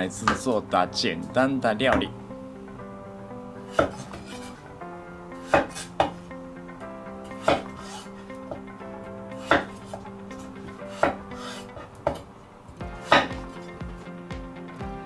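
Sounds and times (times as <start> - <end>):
soft background music: 0.0 - 15.0
knife chopping on wooden board: 3.7 - 4.4, 5.5 - 6.2, 7.4 - 8.0, 9.4 - 9.8, 10.9 - 12.2.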